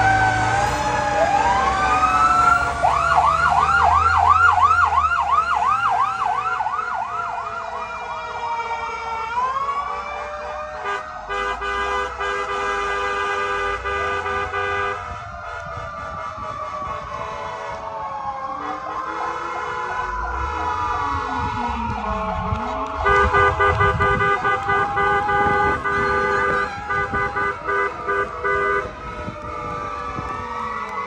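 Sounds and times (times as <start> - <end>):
fire engine siren wailing: 0.0 - 31.0
fire engine horn blast: 7.6 - 31.0.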